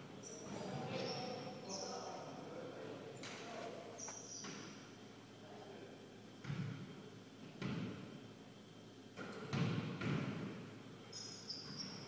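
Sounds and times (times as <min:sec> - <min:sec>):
basketball bouncing on hardwood floor: 0:07.6 - 0:08.0, 0:09.3 - 0:10.4.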